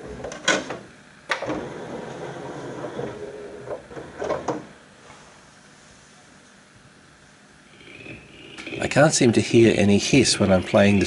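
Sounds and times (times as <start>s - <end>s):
disc motor spinning up: 7.8s - 11.0s.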